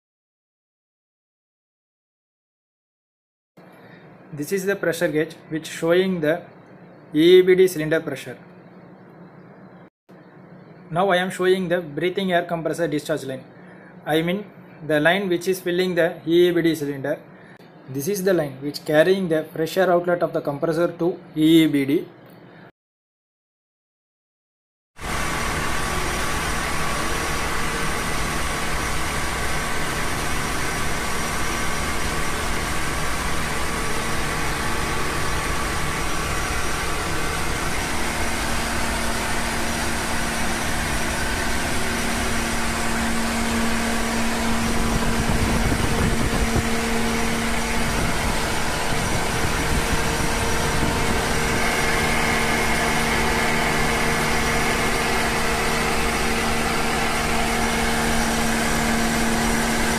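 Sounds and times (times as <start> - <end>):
air compressor droning: 25.0 - 59.9.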